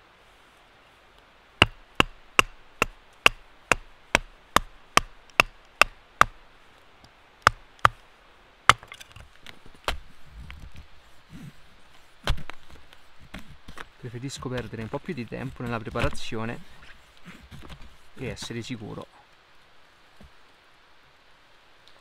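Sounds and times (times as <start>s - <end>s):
log knocking on knife spine: 1.6s - 6.4s, 8.7s - 10.0s.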